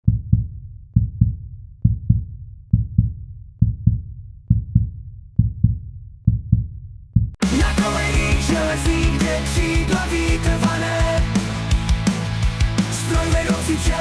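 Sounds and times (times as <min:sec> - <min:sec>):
heartbeat double thump: 0:00.0 - 0:07.4.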